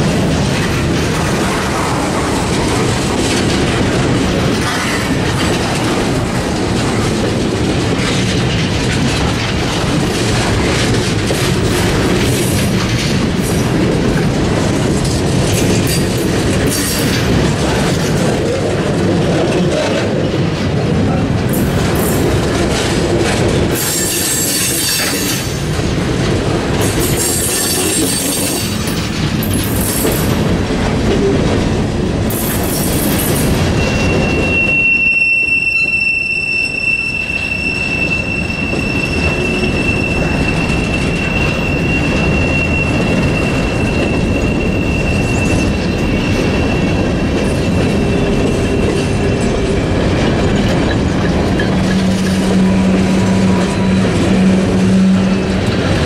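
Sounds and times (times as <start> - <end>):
high wheel screeching: 32.7 - 49.7
steady wheel squeal: 33.7 - 49.5.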